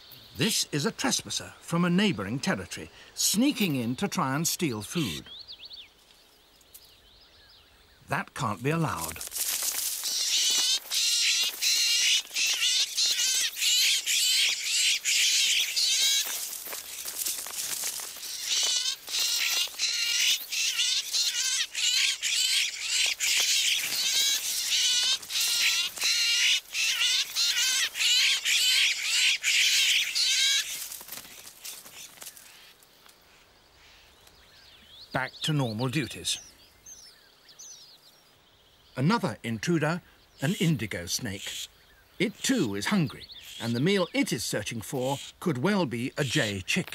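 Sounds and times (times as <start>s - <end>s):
jays harsh scolding calls: 2.2s - 5.3s, 8.0s - 32.8s, 39.8s - 46.8s.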